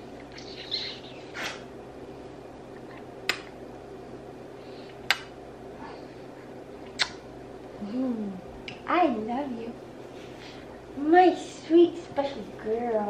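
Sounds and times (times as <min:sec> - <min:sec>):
faint room hum: 0:00.0 - 0:13.0
sharp kisses on cheek: 0:03.3 - 0:03.5, 0:05.0 - 0:05.3, 0:06.9 - 0:07.2.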